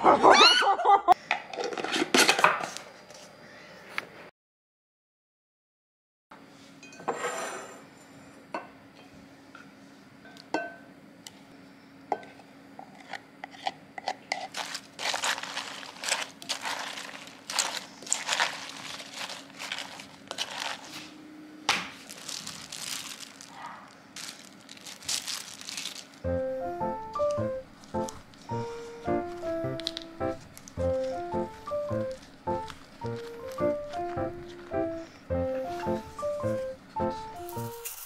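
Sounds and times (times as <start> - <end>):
salad rustling and crunching: 14.3 - 21.1, 22.0 - 26.2, 27.2 - 35.0.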